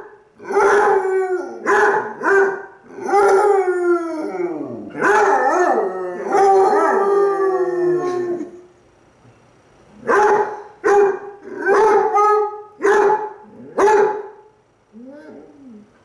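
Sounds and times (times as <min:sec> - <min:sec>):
dogs howling: 0:00.4 - 0:08.7, 0:11.4 - 0:12.6
dog yelp: 0:01.6 - 0:03.4, 0:04.9 - 0:07.0, 0:10.1 - 0:14.3.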